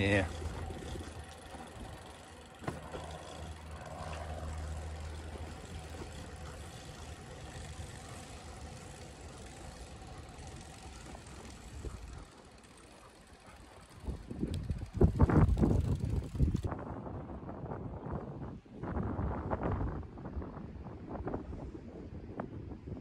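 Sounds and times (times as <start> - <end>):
low engine drone: 0.0 - 16.7.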